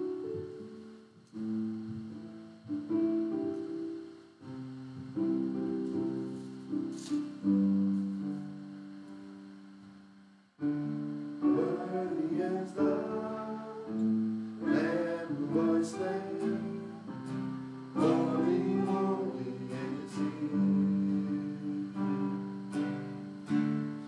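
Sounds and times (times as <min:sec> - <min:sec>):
acoustic guitar strumming: 0:10.6 - 0:24.0
person singing: 0:11.3 - 0:23.5.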